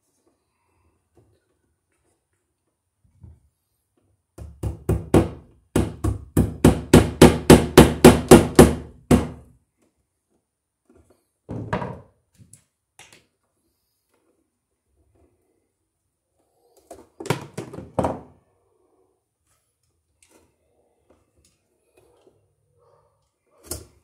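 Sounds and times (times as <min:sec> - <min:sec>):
hammer striking nails into wood: 0:04.4 - 0:09.5.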